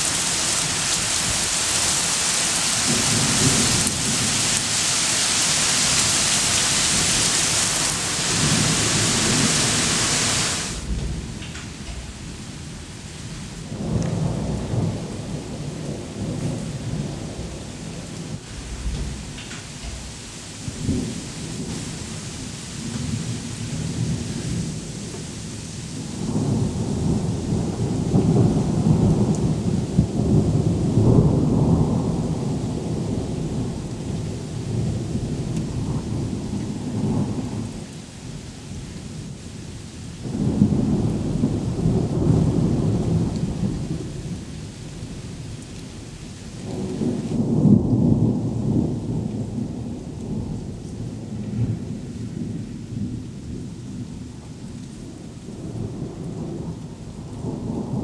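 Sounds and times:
thunder rumbling: 0.0 - 37.8, 40.2 - 58.0
rain hissing: 0.0 - 58.0.

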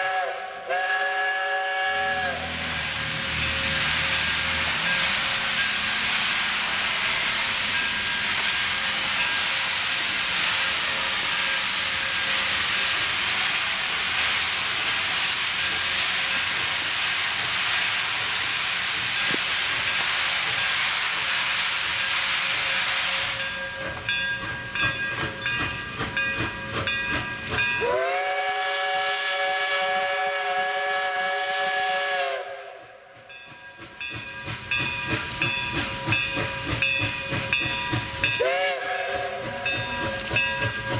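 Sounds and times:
steam whistle blast: 0.0 - 3.2, 22.1 - 23.6, 27.8 - 33.1, 38.2 - 40.3
locomotive exhaust beats: 0.0 - 40.9
steam hissing: 0.0 - 40.9.

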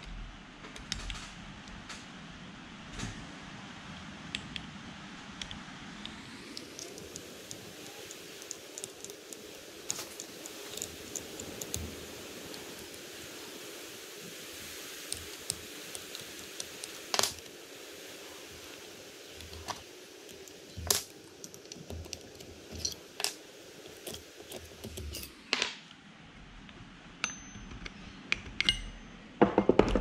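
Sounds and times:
steady hiss: 0.0 - 29.4
metal tools clicking and clinking: 19.4 - 25.4, 28.6 - 29.2.

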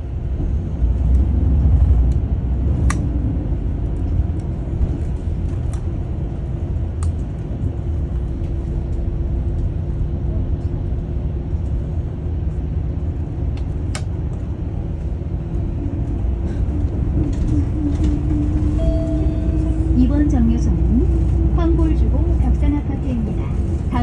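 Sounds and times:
bus engine drone: 0.0 - 24.0
road rumble: 0.0 - 24.0
steady tone: 17.5 - 22.6.

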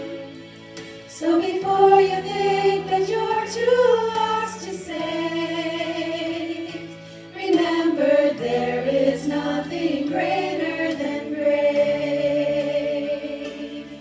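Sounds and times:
women singing in harmony: 0.0 - 0.5, 1.1 - 14.0.

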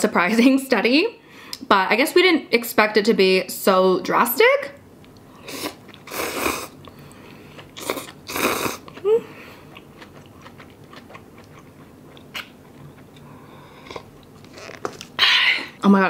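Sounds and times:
person chewing: 5.0 - 15.2
noodle slurping: 5.4 - 6.8, 7.6 - 9.1.

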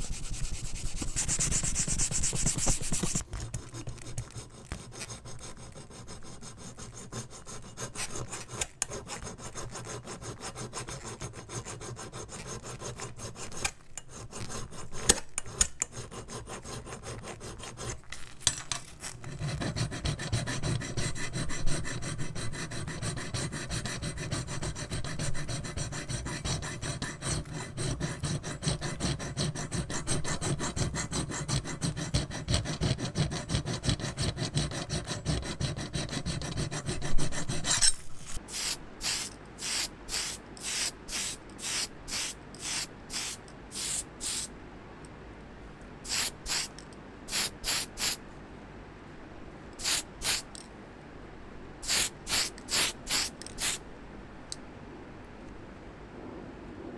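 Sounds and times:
metal file rasping on metal: 0.0 - 18.0, 19.2 - 38.0.

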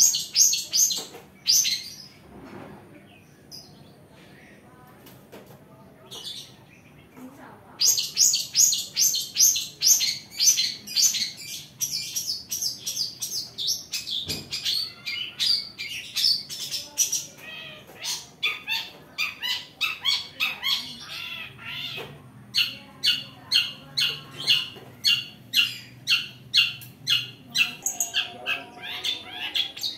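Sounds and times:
shrike chirping and warbling: 22.6 - 29.9.

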